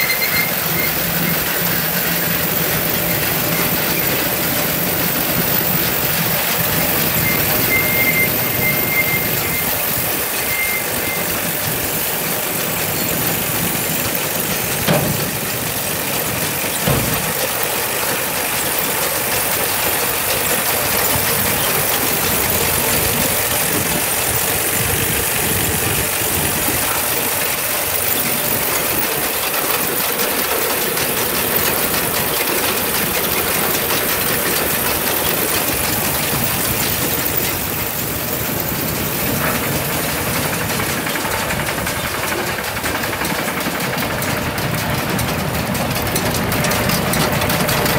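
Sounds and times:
tractor engine idling: 0.0 - 47.9.

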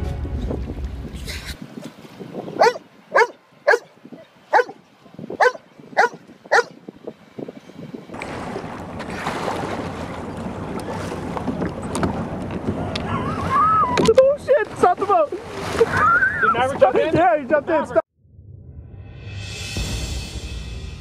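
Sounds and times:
wind and water rushing: 0.0 - 18.0
dog yipping: 2.6 - 3.9, 4.5 - 4.8, 5.4 - 6.8.

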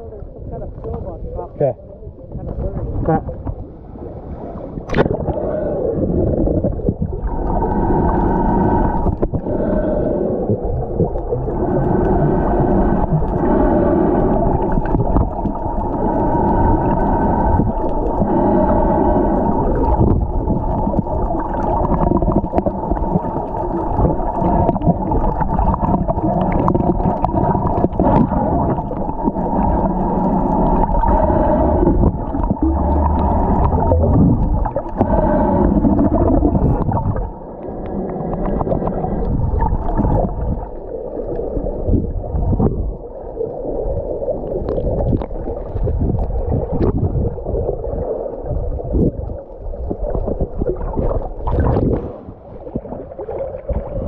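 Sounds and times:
muffled underwater churning: 0.0 - 54.0
underwater clicks: 4.8 - 5.4, 6.4 - 43.0.

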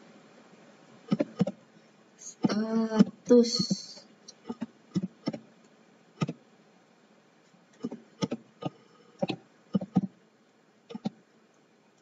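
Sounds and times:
computer keyboard typing: 1.1 - 1.6, 2.4 - 5.4, 7.8 - 10.1, 10.9 - 11.2.

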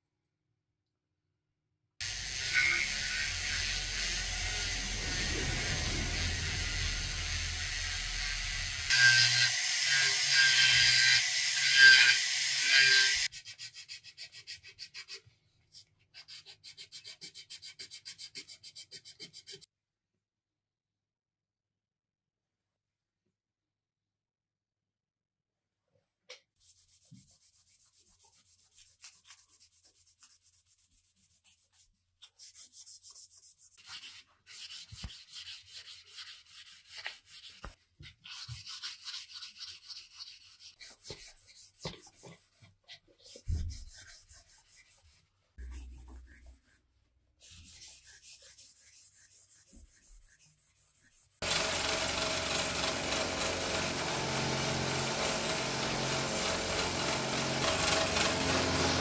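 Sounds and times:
electric power tool running: 2.0 - 10.3, 51.4 - 59.0
hand sanding wood: 26.6 - 46.8, 47.4 - 59.0.

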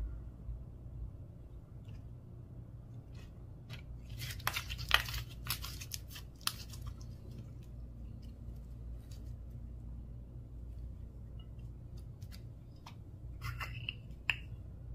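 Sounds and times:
slime crackling and snapping: 4.1 - 7.7.

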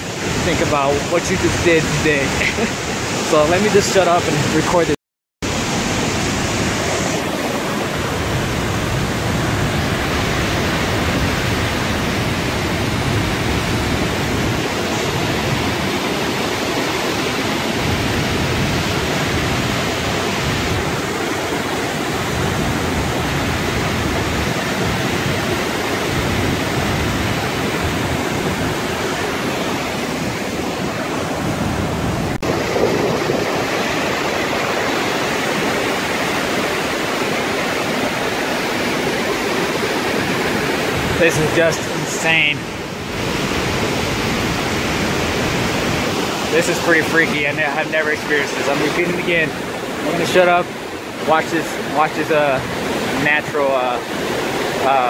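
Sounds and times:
waterfall rushing: 0.0 - 55.0.

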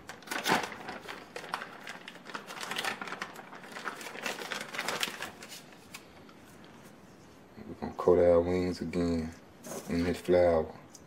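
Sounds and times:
plastic bag crinkling: 0.0 - 6.2.

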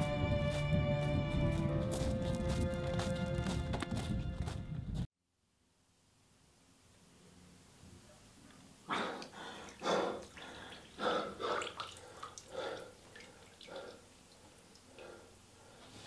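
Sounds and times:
water dripping: 8.5 - 15.6
man gasping for breath: 8.9 - 13.0.

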